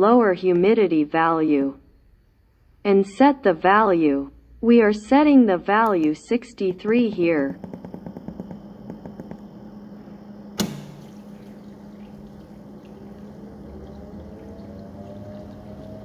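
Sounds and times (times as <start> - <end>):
humidifier low hum: 2.9 - 16.0
sharp click: 10.6 - 10.9
faint rising tone: 11.3 - 16.0.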